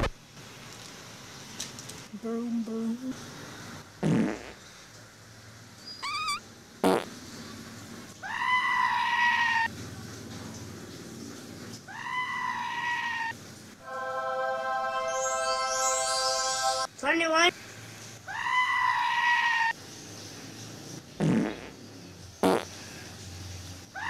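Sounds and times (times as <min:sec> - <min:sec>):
high-pitched calls: 0:05.9 - 0:06.4, 0:13.8 - 0:17.0
held tone of steady notes: 0:13.8 - 0:17.2.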